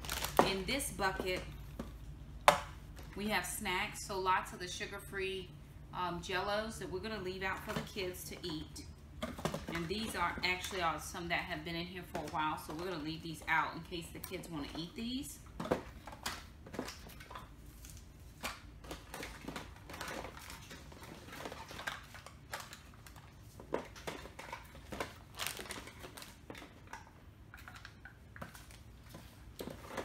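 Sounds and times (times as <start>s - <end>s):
plastic packaging clicks and rustles: 0.0s - 0.5s, 15.6s - 30.0s.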